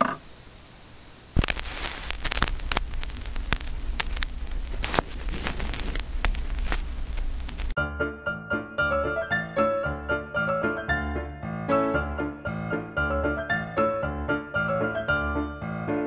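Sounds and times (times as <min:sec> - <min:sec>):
static hiss: 0:00.0 - 0:07.8
pops and clicks: 0:01.4 - 0:07.8.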